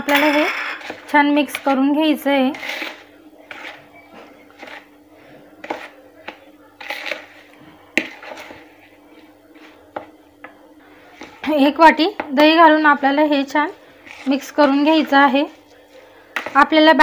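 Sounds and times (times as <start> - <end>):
faint steady hum: 0.0 - 17.0
spoon scraping in plastic bowl: 0.3 - 1.8, 2.5 - 5.0, 5.6 - 8.7, 14.0 - 15.7.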